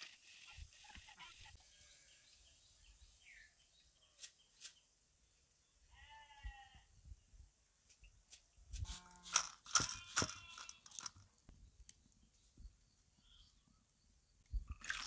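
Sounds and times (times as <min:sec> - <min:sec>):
goat bleating: 0:10.0 - 0:10.8.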